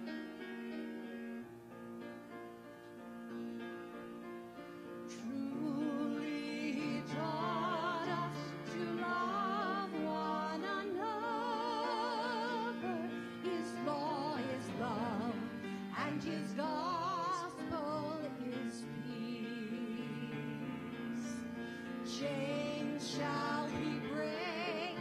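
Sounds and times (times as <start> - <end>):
woman and man singing: 5.1 - 25.0.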